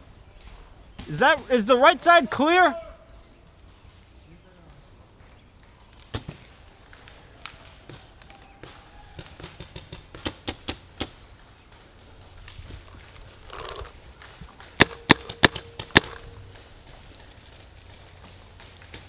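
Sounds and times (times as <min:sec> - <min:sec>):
paintball marker shots: 0:14.8 - 0:16.3.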